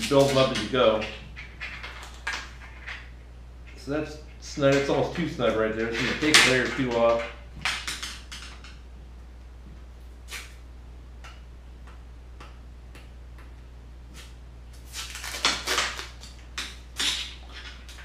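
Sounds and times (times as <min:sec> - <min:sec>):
steady low hum: 0:00.0 - 0:18.0
masking tape ripping: 0:14.2 - 0:16.3.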